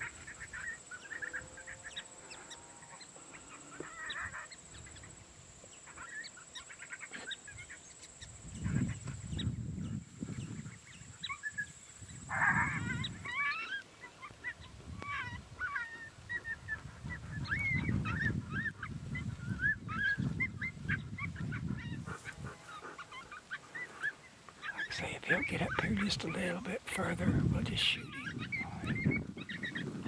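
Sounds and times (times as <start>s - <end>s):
coyotes yipping and barking: 0.0s - 9.5s, 10.3s - 30.0s
wind rumble on microphone: 7.5s - 13.4s, 14.4s - 22.7s, 24.9s - 30.0s.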